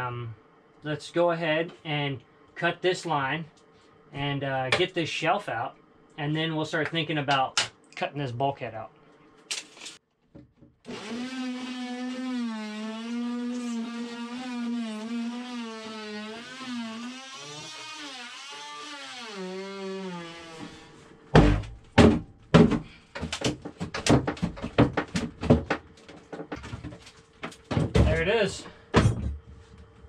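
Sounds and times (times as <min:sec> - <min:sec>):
power saw cutting plywood: 0:10.9 - 0:21.6
wood knocks and thunks: 0:21.3 - 0:27.0, 0:27.6 - 0:28.3, 0:28.9 - 0:29.5.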